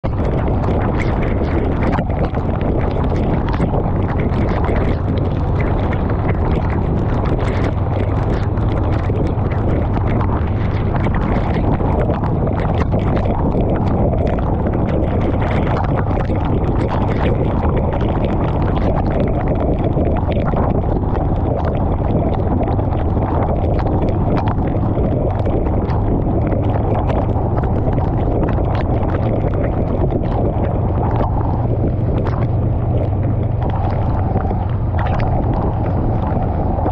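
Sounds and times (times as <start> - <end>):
wind rushing over microphone: 0.0 - 36.9
motorcycle engine and tyre drone: 30.7 - 36.9.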